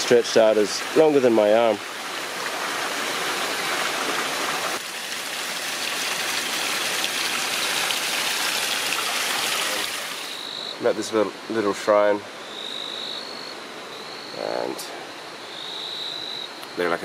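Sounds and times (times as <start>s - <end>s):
running water rushing: 0.0s - 12.5s.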